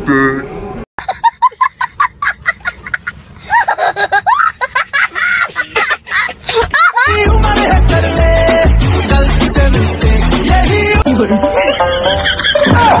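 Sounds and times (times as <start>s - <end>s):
young child laughing: 1.0s - 7.1s
music with steady beat: 7.1s - 12.9s.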